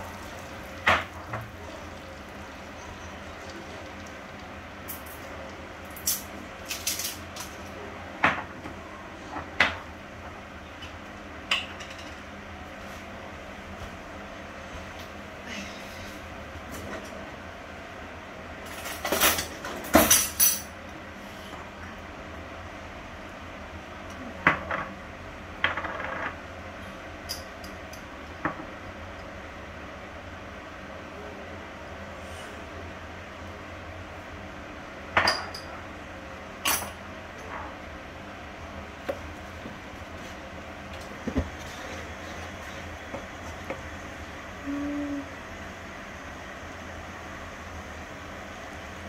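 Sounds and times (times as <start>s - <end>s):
steady low hum: 26.3s - 49.0s.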